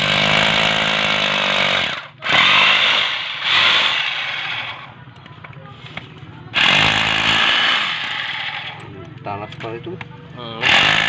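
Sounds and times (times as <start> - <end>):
concrete hammer pounding: 10.6 - 11.0.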